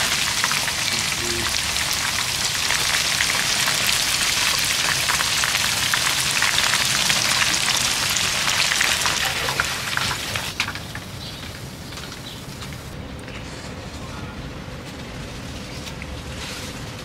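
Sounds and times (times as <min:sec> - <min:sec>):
hot oil sizzling and crackling: 0:00.0 - 0:13.0.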